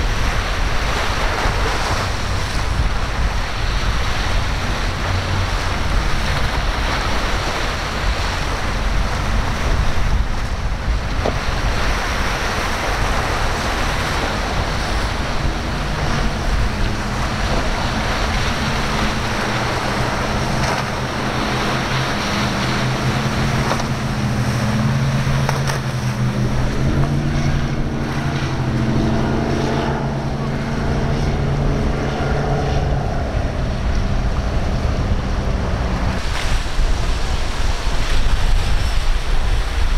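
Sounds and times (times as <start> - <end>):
powerboat engine droning: 0.0 - 39.9
waves breaking: 0.0 - 39.9
wind buffeting microphone: 0.0 - 39.9.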